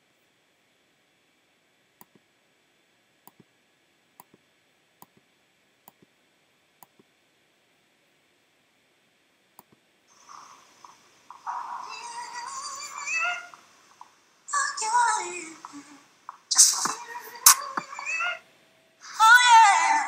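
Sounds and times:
computer mouse clicks: 2.0s - 2.2s, 3.2s - 3.5s, 4.2s - 4.4s, 5.8s - 6.1s, 6.8s - 7.1s
hissy video sound: 10.1s - 20.0s.

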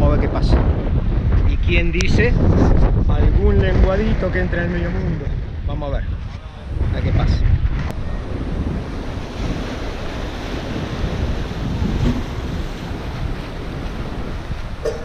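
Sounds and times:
wind buffeting microphone: 0.0s - 15.0s
surf breaking on rocks: 8.4s - 15.0s.

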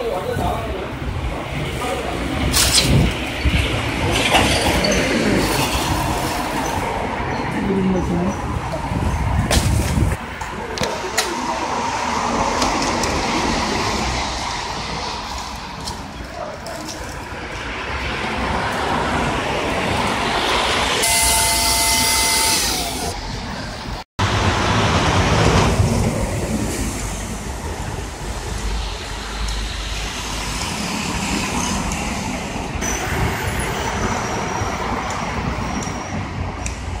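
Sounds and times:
street traffic rumble: 0.0s - 37.0s
vehicles passing: 0.0s - 37.0s
heavy vehicle brakes hissing and squealing: 21.0s - 23.2s.

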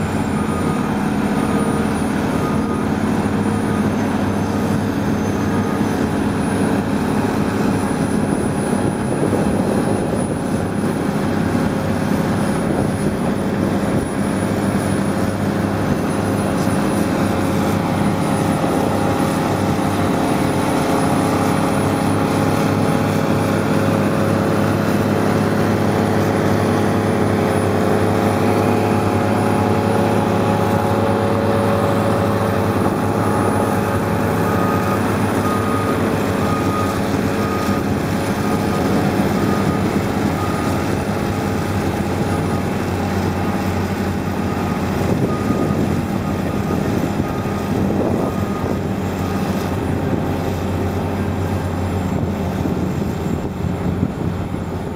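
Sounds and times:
diesel engine running loudly: 0.0s - 54.9s
backup alarm beeping: 27.4s - 49.6s.

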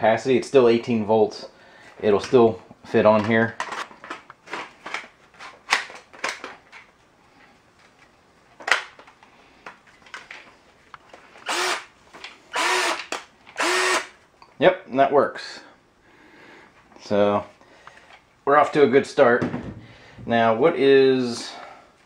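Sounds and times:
drill motor spinning up: 11.4s - 11.9s, 12.5s - 13.0s, 13.6s - 14.1s.

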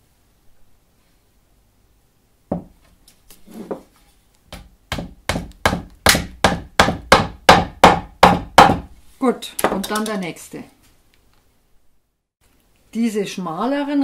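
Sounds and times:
hammer tapping wedge into wood: 4.5s - 8.9s.

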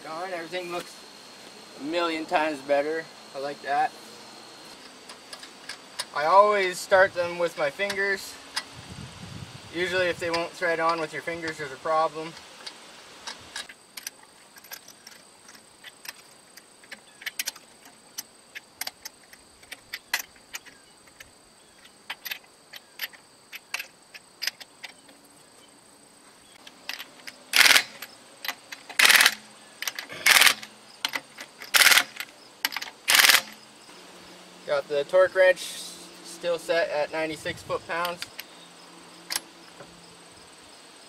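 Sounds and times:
cordless power tool bursts: 27.5s - 28.1s, 28.9s - 30.8s, 31.6s - 32.3s, 33.0s - 33.6s.

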